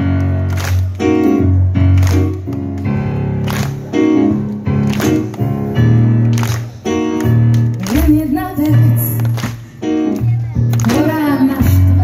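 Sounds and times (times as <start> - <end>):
keyboard chords: 0.0 - 12.0
woman singing: 7.9 - 9.2, 10.8 - 12.0.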